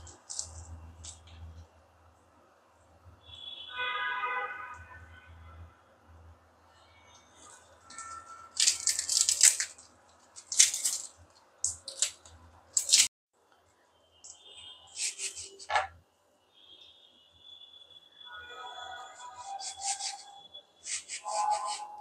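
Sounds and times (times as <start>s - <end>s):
charred skin crackling as peeled: 0.0s - 1.4s, 7.4s - 13.1s.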